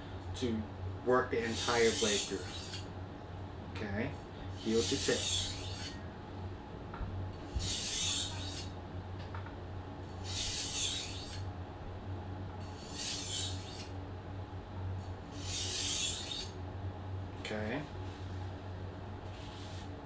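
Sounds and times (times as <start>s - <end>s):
knife scraping across whetstone: 1.5s - 2.8s, 4.6s - 6.0s, 7.5s - 8.7s, 10.2s - 11.4s, 12.6s - 13.9s, 15.3s - 16.6s.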